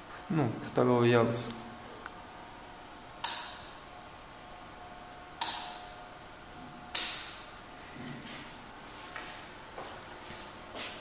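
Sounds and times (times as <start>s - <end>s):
light switch clicks: 3.2s - 3.7s.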